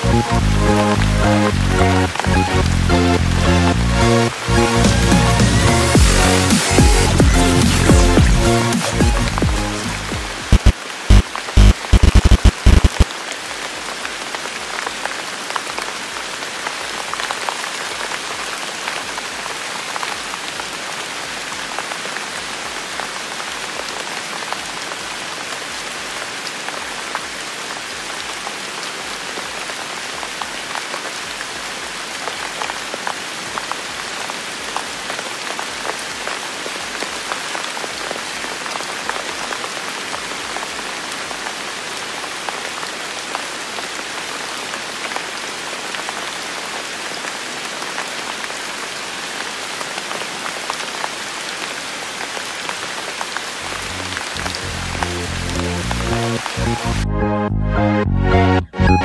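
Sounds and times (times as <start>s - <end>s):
rain hiss: 0.0s - 57.0s
raindrops striking: 4.3s - 13.3s, 52.1s - 57.0s.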